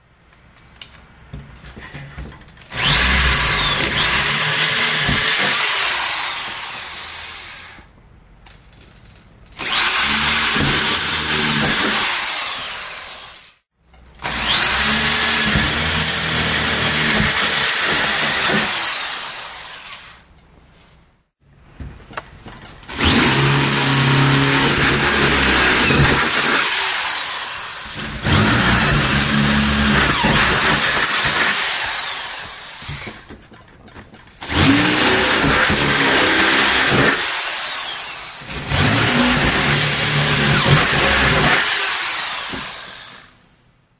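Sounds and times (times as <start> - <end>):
electric drill whining: 2.7 - 7.9, 9.6 - 13.5, 14.2 - 20.2, 22.9 - 33.4, 34.4 - 43.4.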